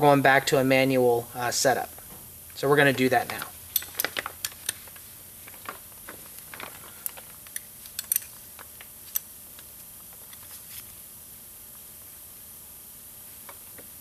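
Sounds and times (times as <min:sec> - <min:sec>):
wrench clicking on bolts: 0:07.5 - 0:08.3.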